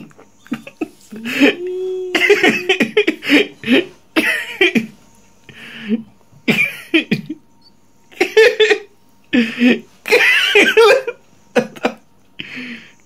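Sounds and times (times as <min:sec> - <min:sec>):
man laughing: 0:00.0 - 0:04.9, 0:06.5 - 0:07.4, 0:08.1 - 0:12.0.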